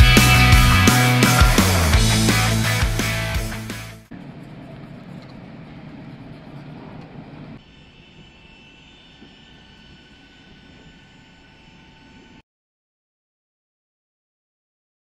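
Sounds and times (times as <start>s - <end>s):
rock music: 0.0s - 4.1s
airliner engine whine: 4.1s - 12.4s.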